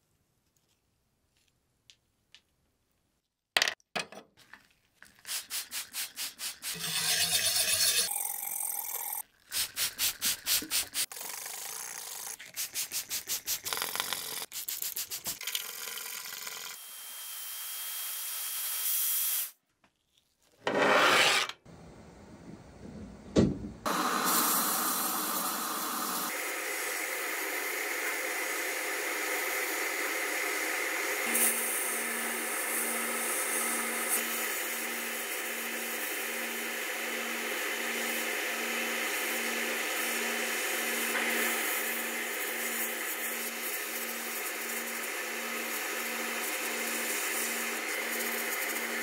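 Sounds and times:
scraper scraping metal: 20.6s - 21.6s
compressed air hissing: 23.9s - 35.4s.

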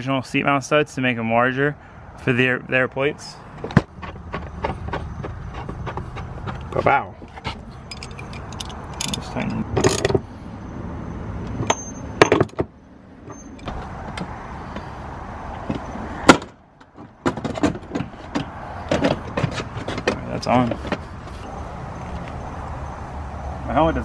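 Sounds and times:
metallic clinks of hand tools: 7.9s - 10.1s.

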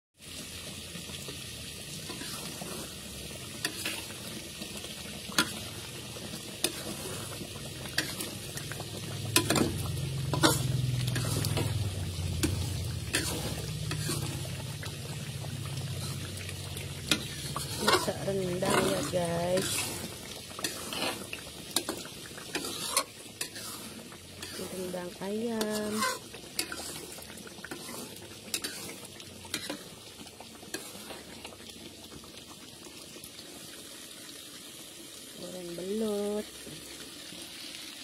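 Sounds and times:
sauce sizzling and bubbling in wok: 0.2s - 38.0s
metal spatula scraping wok: 2.0s - 4.2s, 5.3s - 5.8s, 6.5s - 14.9s, 15.7s - 30.0s, 30.7s - 31.3s.

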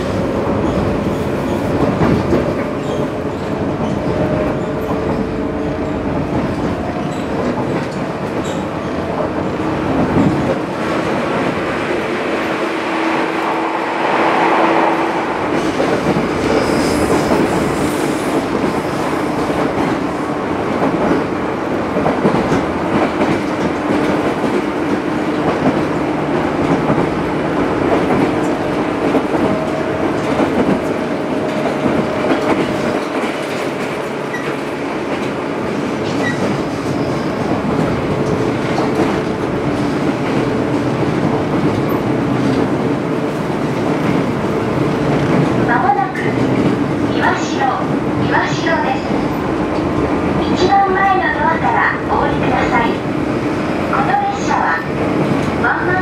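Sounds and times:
wheels clickety-clack on rails: 0.0s - 12.6s, 15.4s - 56.0s
electric train interior hum: 0.0s - 56.0s.

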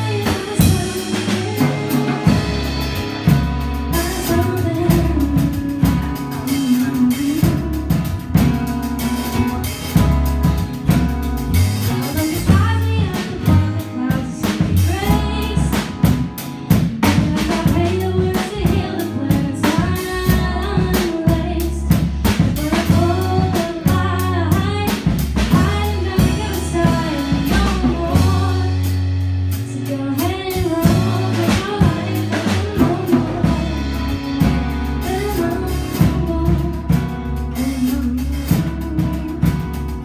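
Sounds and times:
woman singing: 0.0s - 8.7s, 11.8s - 40.0s
acoustic guitar: 0.0s - 40.0s
drum kit: 0.0s - 40.0s
electric bass: 0.0s - 40.0s.

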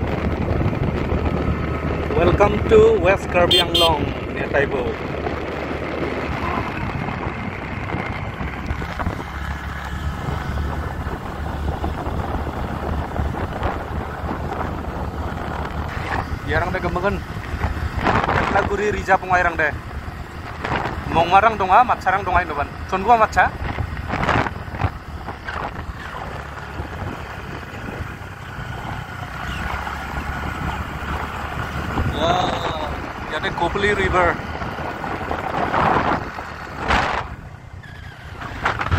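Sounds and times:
tyre noise on road: 0.0s - 38.9s
wind buffeting microphone: 0.0s - 38.9s
scooter engine: 4.9s - 18.5s, 22.5s - 38.9s.

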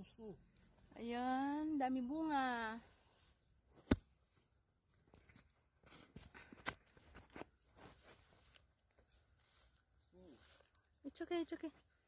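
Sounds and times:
rustling leafy branches: 6.8s - 11.7s.

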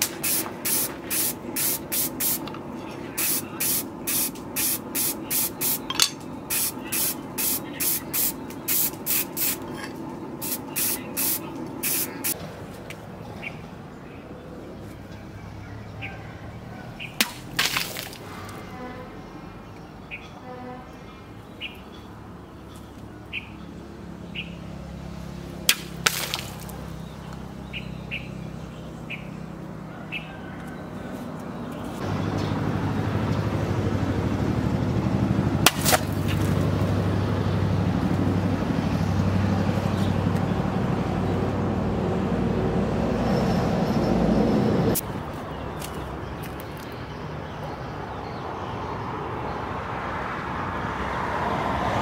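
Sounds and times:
birds chirping: 0.0s - 34.8s, 43.2s - 49.8s
blade chopping plastic bottles: 17.2s - 18.3s, 25.7s - 26.8s, 35.6s - 36.6s.

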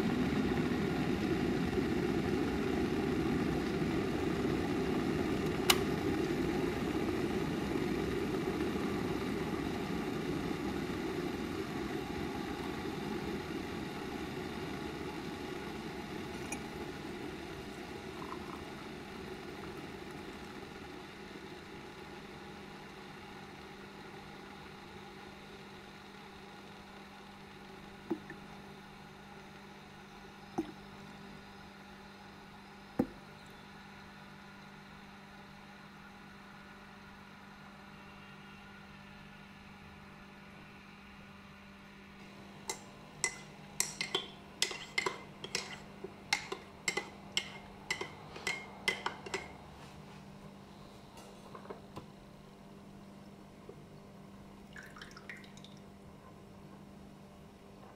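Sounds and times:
steady low hum: 0.0s - 57.9s
spoon stirring in ceramic mug: 42.7s - 49.6s.

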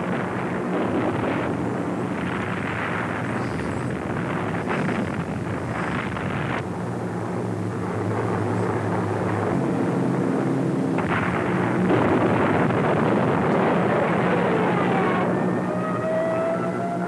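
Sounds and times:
propeller engines droning: 0.0s - 17.0s
rushing noise: 0.0s - 17.0s.

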